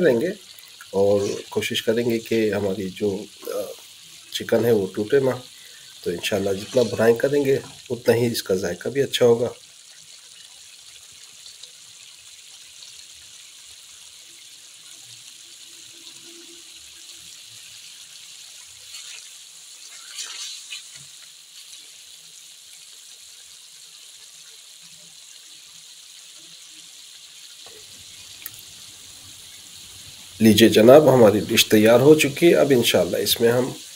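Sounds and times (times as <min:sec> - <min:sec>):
curry sizzling in a pan: 0:00.0 - 0:33.9
spatula stirring: 0:06.1 - 0:07.8, 0:18.8 - 0:22.0.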